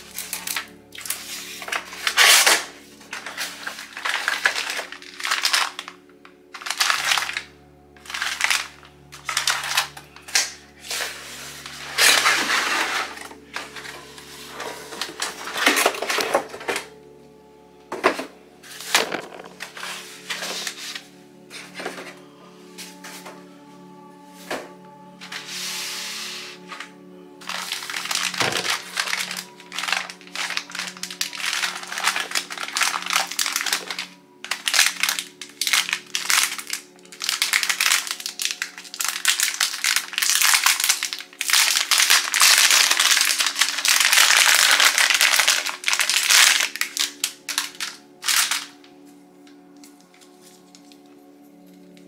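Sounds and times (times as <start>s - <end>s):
plastic packaging crinkling: 0.0s - 17.0s, 18.0s - 21.0s, 26.5s - 51.1s
soft background music: 0.0s - 52.0s.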